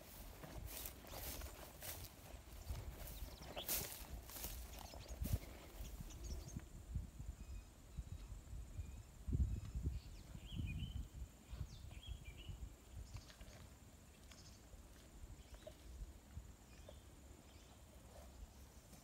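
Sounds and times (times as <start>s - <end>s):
wind rumble on microphone: 2.6s - 13.6s.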